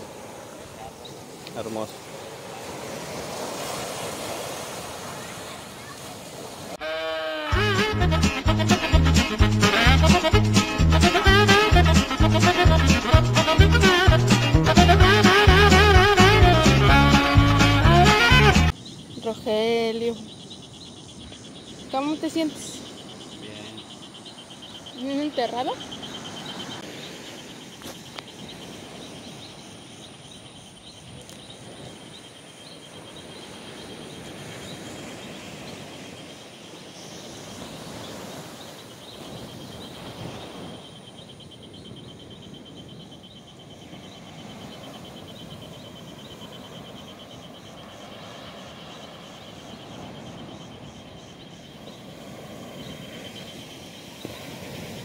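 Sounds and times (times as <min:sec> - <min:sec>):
surf washing on shore: 0:00.0 - 0:18.8, 0:21.4 - 0:55.0
insect trilling: 0:18.7 - 0:55.0.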